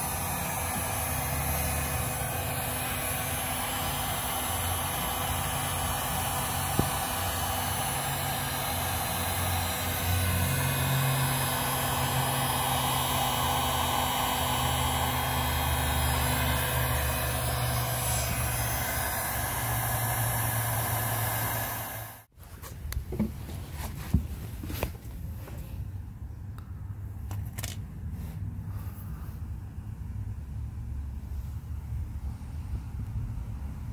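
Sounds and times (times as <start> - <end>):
heat gun blowing: 0.0 - 22.3.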